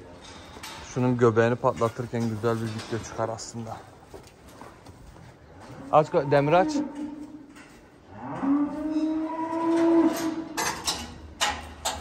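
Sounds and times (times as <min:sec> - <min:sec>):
cow mooing: 0:05.8 - 0:07.4, 0:08.1 - 0:10.6.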